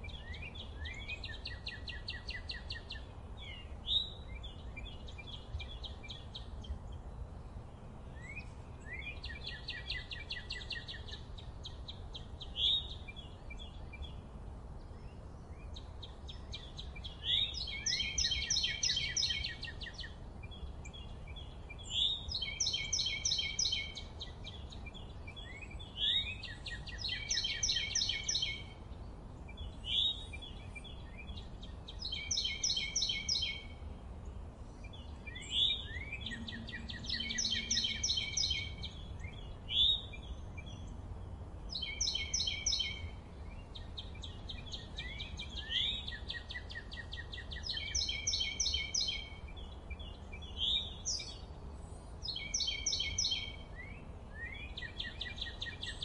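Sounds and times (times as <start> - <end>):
faint low rumble: 0.0 - 56.0
songbird trilling: 15.5 - 28.8, 29.5 - 33.8, 34.8 - 41.0, 41.6 - 51.5, 52.2 - 56.0
rising bird chirps: 35.3 - 40.3.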